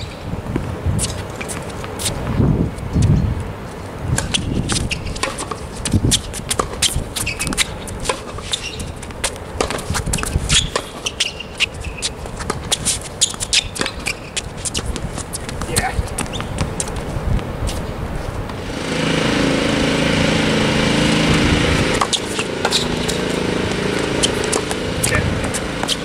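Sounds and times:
shoes squeaking on court: 0:00.0 - 0:18.9, 0:21.2 - 0:26.0
tennis ball knocks: 0:09.6 - 0:09.9, 0:21.9 - 0:26.0.

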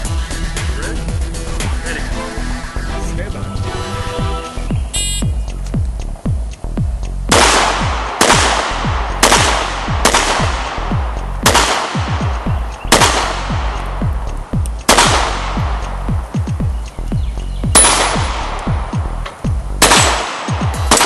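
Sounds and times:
electronic music with beat: 0:00.0 - 0:21.0
pistol shots: 0:07.3 - 0:13.8, 0:14.9 - 0:15.8, 0:17.7 - 0:19.0, 0:19.8 - 0:21.0.

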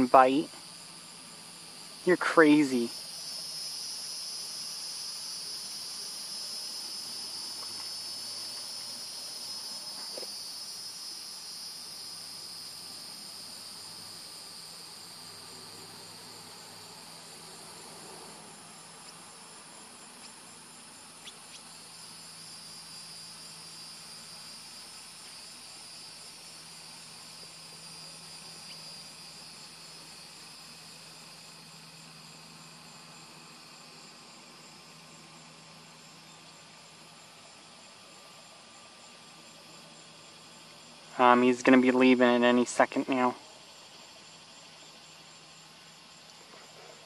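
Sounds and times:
insects trilling: 0:00.0 - 0:47.0.

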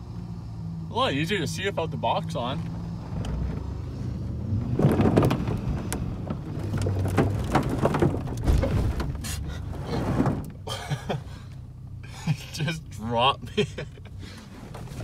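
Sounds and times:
clanks knocks and creaks: 0:04.6 - 0:10.6.

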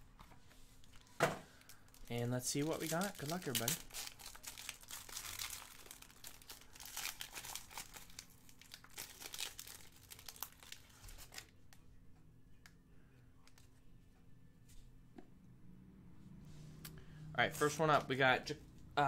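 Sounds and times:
foil wrapper crinkling and tearing: 0:01.6 - 0:11.5.

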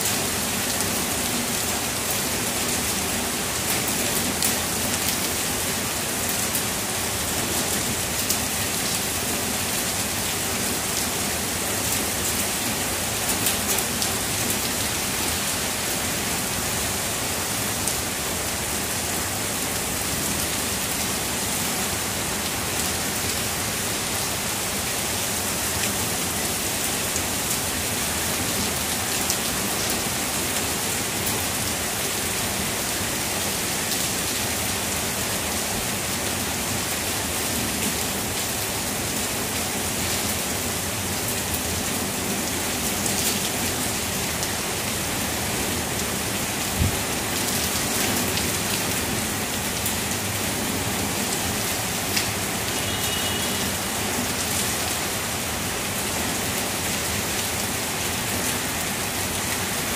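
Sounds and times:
heavy rain falling: 0:00.0 - 0:59.9.

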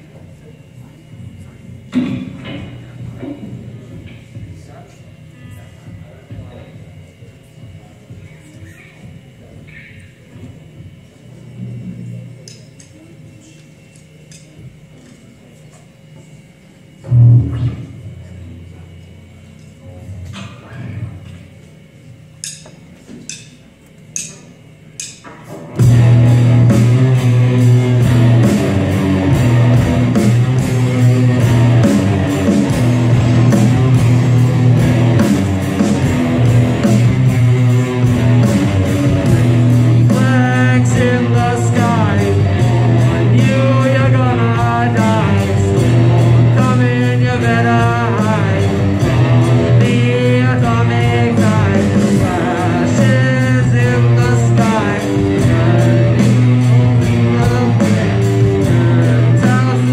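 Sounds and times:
rock band playing: 0:25.5 - 0:59.9
person singing: 0:37.3 - 0:59.9.

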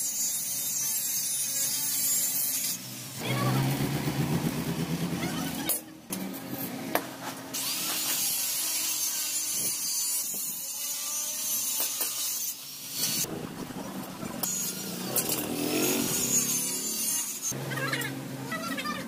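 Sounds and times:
tool scraping steel tube: 0:14.4 - 0:17.6.

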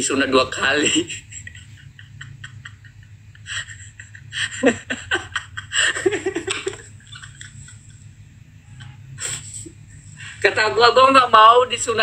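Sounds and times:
men giggling: 0:00.9 - 0:09.7.

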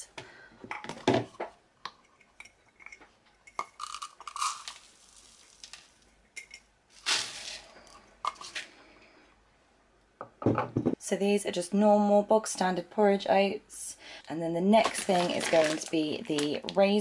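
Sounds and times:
oats pouring: 0:03.8 - 0:06.1, 0:06.9 - 0:08.0, 0:14.8 - 0:16.7.

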